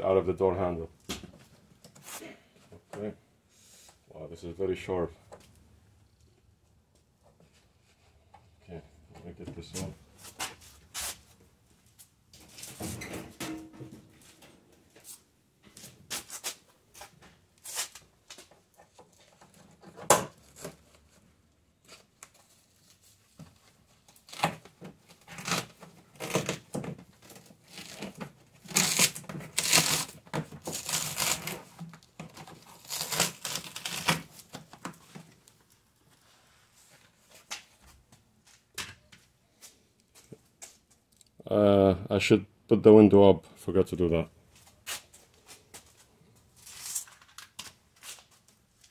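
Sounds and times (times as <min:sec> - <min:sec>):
foam sheet crinkling: 0:27.7 - 0:31.6, 0:32.6 - 0:34.5
adhesive tearing: 0:28.7 - 0:31.6, 0:32.7 - 0:34.3.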